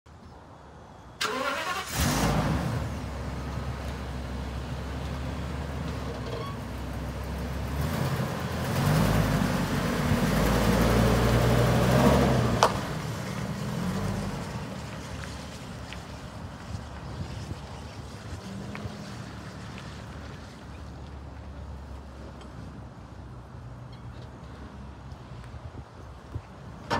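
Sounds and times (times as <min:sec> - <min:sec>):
truck engine revving: 0:01.2 - 0:15.0
truck engine starting and idling: 0:01.2 - 0:15.2.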